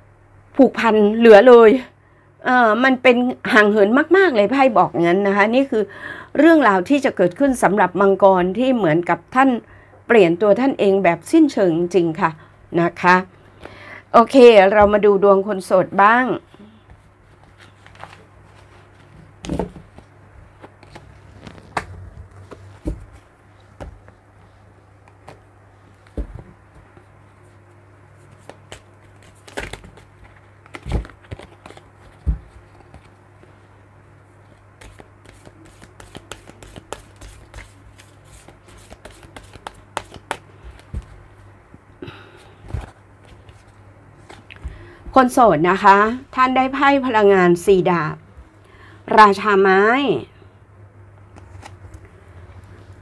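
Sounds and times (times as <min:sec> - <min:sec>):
cards being shuffled by hand: 0:16.9 - 0:33.6, 0:34.4 - 0:41.3, 0:42.4 - 0:44.8, 0:51.3 - 0:53.0
cards tapping and sliding: 0:28.3 - 0:33.1, 0:34.8 - 0:41.1.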